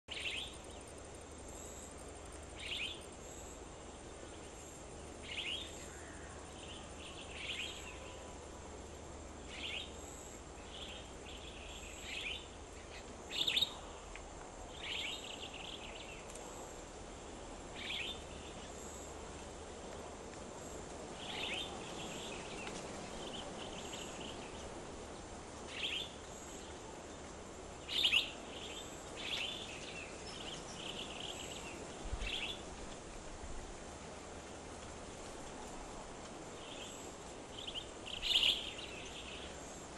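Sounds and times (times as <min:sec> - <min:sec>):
background hiss: 0:00.1 - 0:39.9
bird calling: 0:27.9 - 0:32.6, 0:37.6 - 0:39.5.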